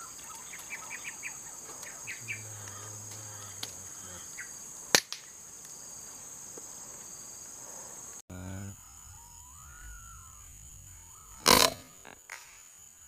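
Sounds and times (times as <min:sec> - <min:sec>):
bird chirps: 0:00.0 - 0:04.6, 0:08.4 - 0:12.6
insects droning: 0:00.0 - 0:13.0.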